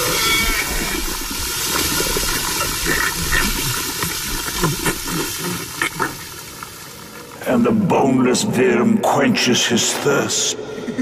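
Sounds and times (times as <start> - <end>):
rushing sloshing liquid: 0.0 - 7.4.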